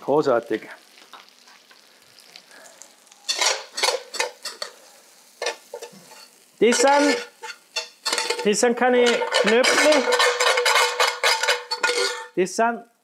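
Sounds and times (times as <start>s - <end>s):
metal spoon scraping a frying pan: 3.3s - 4.8s, 5.4s - 12.4s.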